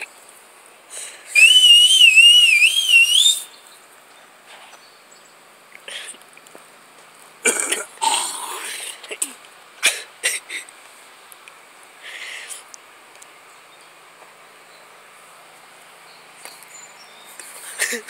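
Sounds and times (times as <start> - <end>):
breathy rustling bursts: 0.8 - 1.4, 11.9 - 12.7
man whistling a warbling call: 1.3 - 3.6.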